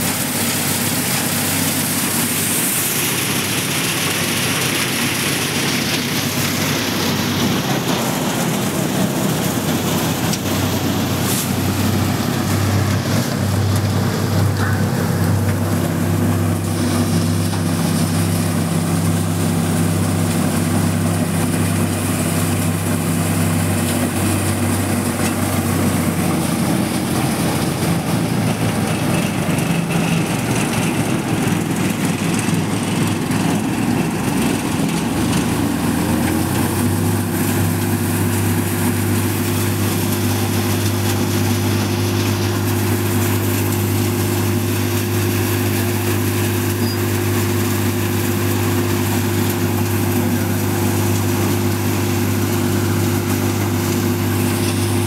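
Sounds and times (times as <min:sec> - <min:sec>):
thresher drum and fan: 0:00.0 - 0:55.0
tractor engine drone: 0:00.0 - 0:55.0.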